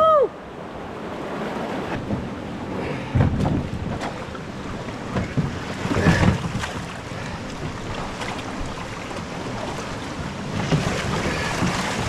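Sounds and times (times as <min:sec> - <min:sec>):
whitewater rapids rushing: 0:00.0 - 0:12.0
canoe knocks and thuds: 0:02.0 - 0:02.4, 0:03.0 - 0:12.0.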